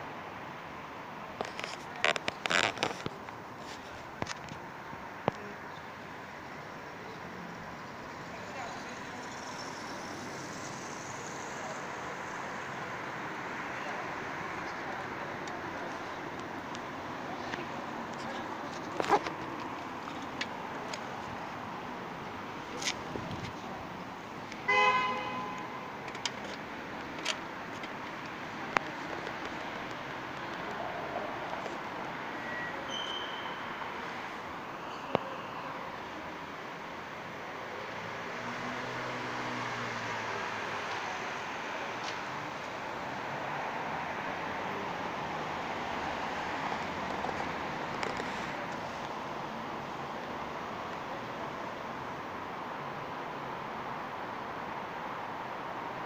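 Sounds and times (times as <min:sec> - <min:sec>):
city street traffic: 0:00.0 - 0:56.0
vehicle horn: 0:24.7 - 0:25.8.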